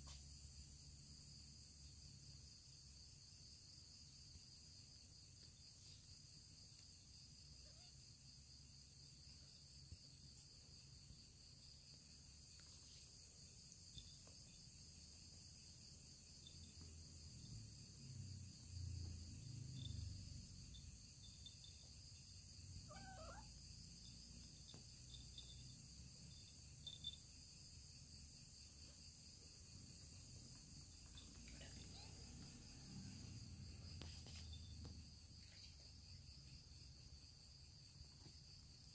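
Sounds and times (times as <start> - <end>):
faint insect chirring: 0.0 - 38.9
kitten mewing: 22.8 - 23.5.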